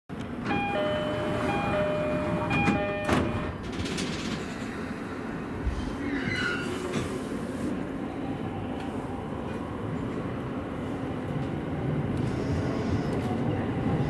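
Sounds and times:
two-tone door chime: 0.4 - 3.6
sliding doors shutting thump: 2.2 - 3.6.

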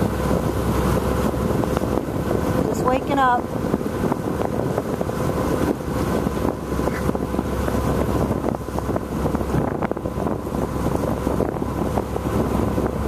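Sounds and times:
boat engine droning: 0.0 - 13.0
wind on microphone: 0.0 - 13.0.

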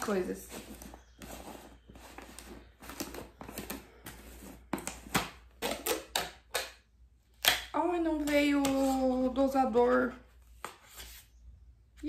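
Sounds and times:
plastic lid scraping: 0.0 - 6.4.

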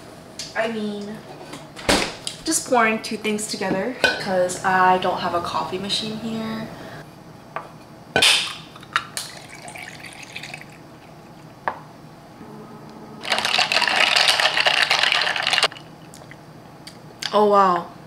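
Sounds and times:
liquid poured over ice: 9.2 - 10.8, 13.3 - 15.9.

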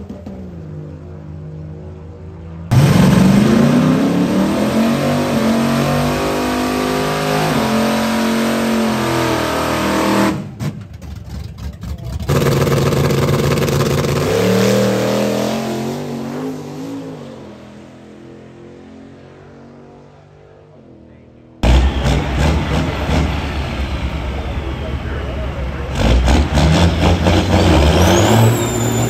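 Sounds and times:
racing truck engine at full throttle: 0.0 - 29.0
choppy engine crackle: 10.8 - 14.2.

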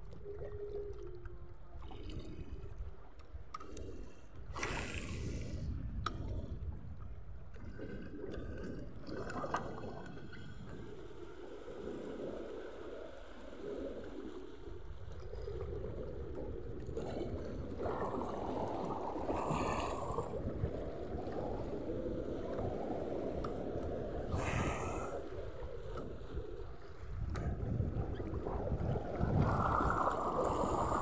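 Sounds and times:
wind rumbling on microphone: 4.3 - 11.1, 11.7 - 31.0
wave splashes: 11.5 - 31.0
waves lapping against rocks: 24.0 - 25.6, 26.7 - 31.0.

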